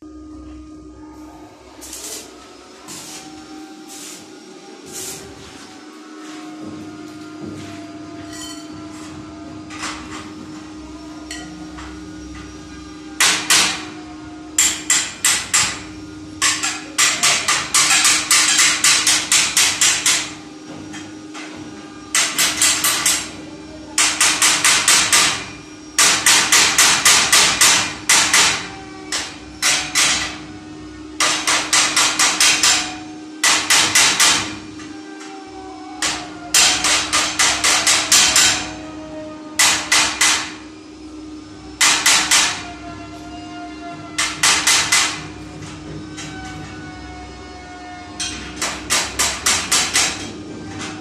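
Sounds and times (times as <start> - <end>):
steady low hum: 0.0 - 51.0
hammer striking steel tubing: 13.2 - 14.0, 14.6 - 20.8, 24.0 - 30.4, 31.2 - 34.6, 36.0 - 38.8, 39.6 - 40.6, 41.8 - 42.7, 44.2 - 45.4, 48.2 - 50.3.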